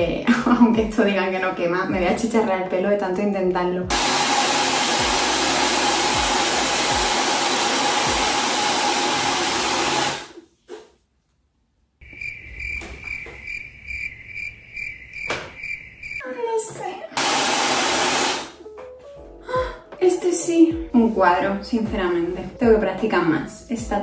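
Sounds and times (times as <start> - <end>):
soft background music: 0.0 - 4.0, 18.5 - 24.0
hair dryer running: 3.9 - 10.4, 17.2 - 18.6.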